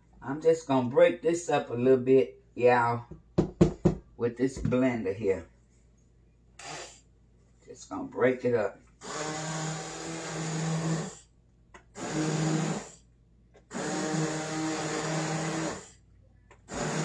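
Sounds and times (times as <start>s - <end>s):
immersion blender motor hum: 6.6s - 6.9s, 9.0s - 11.2s, 12.0s - 13.0s, 13.7s - 15.9s, 16.7s - 17.0s.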